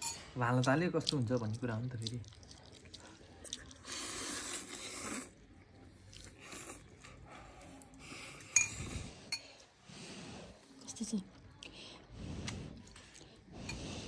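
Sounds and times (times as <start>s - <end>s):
person slurping noodles: 3.8s - 5.4s.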